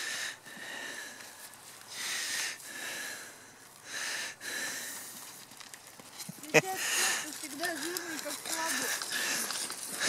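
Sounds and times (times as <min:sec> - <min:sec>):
breathy puffs: 0:06.6 - 0:10.0.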